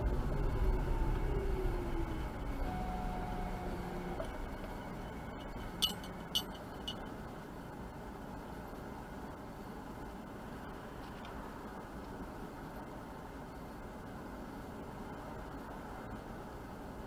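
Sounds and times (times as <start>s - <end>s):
falling whine: 0.0s - 6.9s
car road and engine noise: 0.0s - 17.0s.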